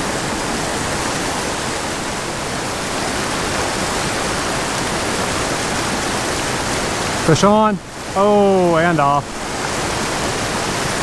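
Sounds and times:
creek rushing over rocks: 0:00.0 - 0:11.0.

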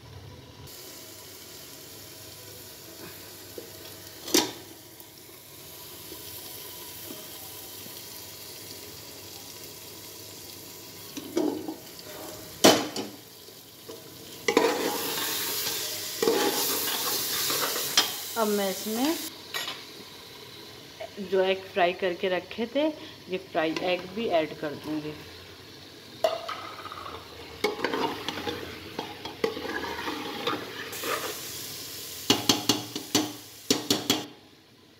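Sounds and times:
oil sizzling: 0:00.0 - 0:34.9
potatoes sizzling while stirred: 0:00.0 - 0:34.9
metal spatula scraping a wok: 0:14.5 - 0:18.2, 0:26.5 - 0:31.5.

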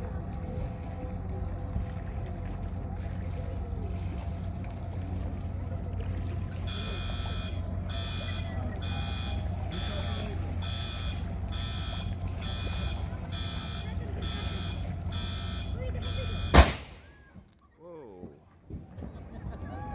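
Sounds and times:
steady low rumble: 0:00.0 - 0:17.6
electronic warning alarm beeping: 0:06.7 - 0:16.6.

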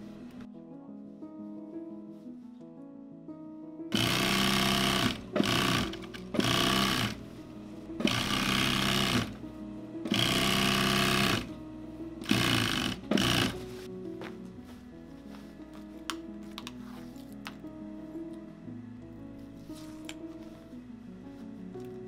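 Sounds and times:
soft background music: 0:00.0 - 0:22.0
sewing machine stitching: 0:03.9 - 0:07.2, 0:08.0 - 0:09.4, 0:10.1 - 0:11.5, 0:12.2 - 0:13.6.

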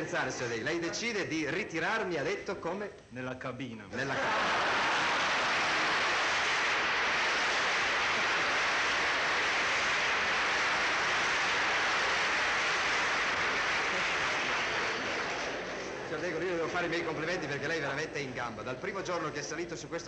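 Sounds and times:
audience applauding: 0:04.1 - 0:19.4.

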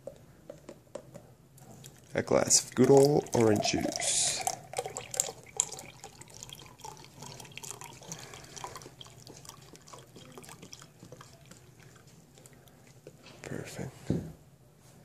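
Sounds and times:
juice pouring into a glass: 0:01.8 - 0:13.0.

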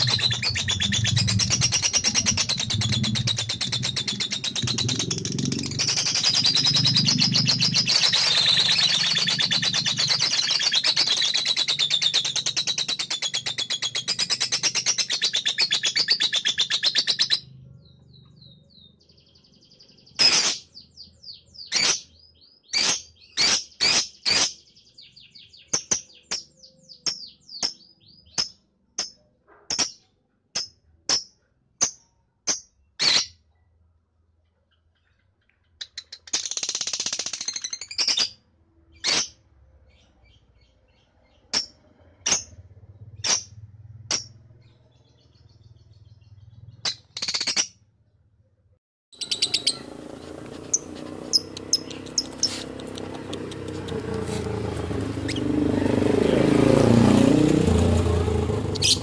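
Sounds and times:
bird rapid trilling chatter: 0:00.0 - 0:17.5, 0:20.2 - 0:20.8, 0:49.2 - 0:59.0
bird sharp single chirps: 0:49.2 - 0:56.1.

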